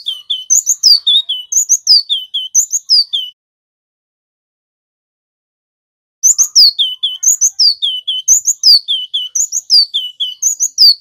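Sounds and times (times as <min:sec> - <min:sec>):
bird singing rolling song: 0:00.0 - 0:03.4, 0:06.2 - 0:11.0.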